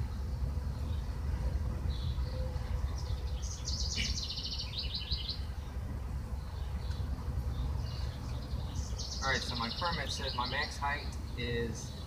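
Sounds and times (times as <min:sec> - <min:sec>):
steady low rumble: 0:00.0 - 0:12.0
faint bird chirps: 0:02.0 - 0:05.4
bird trilling: 0:03.4 - 0:05.4.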